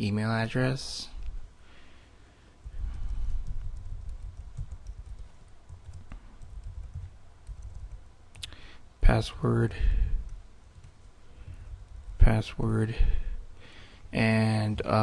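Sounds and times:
computer keyboard typing: 2.6 - 8.1, 10.2 - 12.5.

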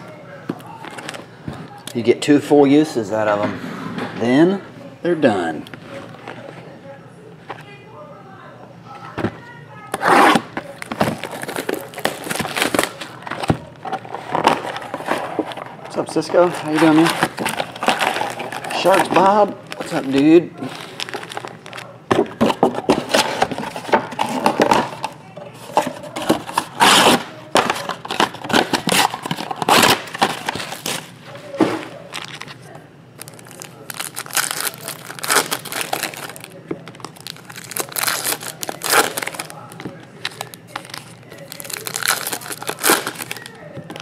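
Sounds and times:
foil packs crinkling: 10.0 - 31.1, 31.9 - 32.6, 33.2 - 44.0.

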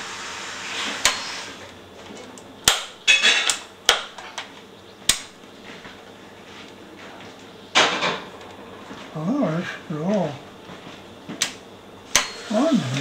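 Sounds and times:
steady hiss: 0.0 - 1.8, 9.0 - 13.0.

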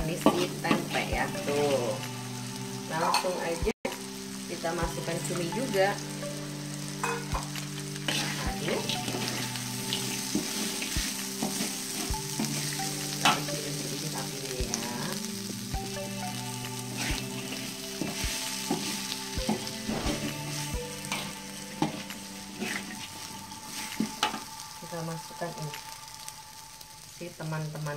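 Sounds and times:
food sizzling in a wok: 0.0 - 27.9
spatula scraping a pan: 0.2 - 1.1, 7.0 - 13.5, 17.0 - 24.4.

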